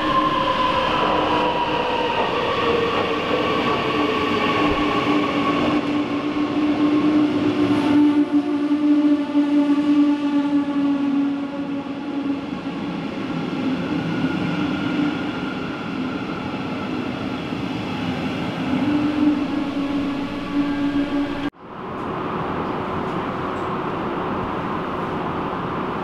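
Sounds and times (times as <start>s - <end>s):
electric locomotive hum: 0.0s - 26.0s
wheels rumbling on rail: 10.4s - 26.0s.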